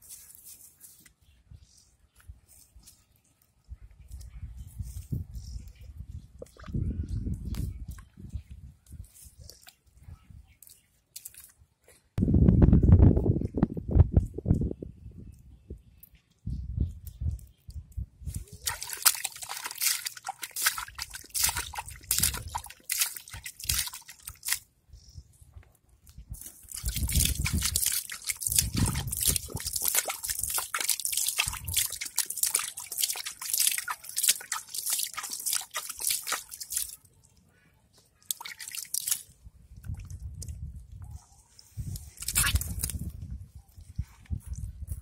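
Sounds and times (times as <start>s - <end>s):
mud splashing and squelching: 10.6s - 11.6s, 17.3s - 24.7s, 26.2s - 37.4s, 38.0s - 43.9s.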